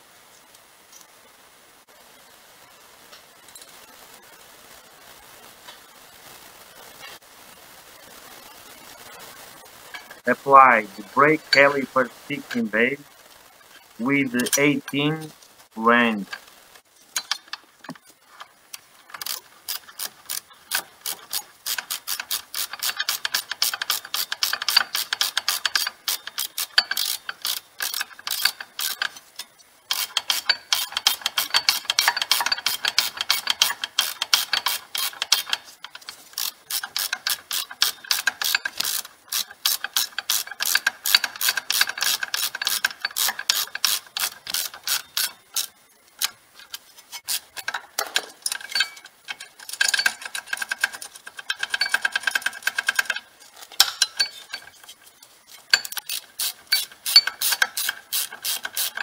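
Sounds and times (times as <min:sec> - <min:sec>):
ratchet wrench clicking: 0:17.2 - 0:18.0, 0:18.7 - 0:59.0.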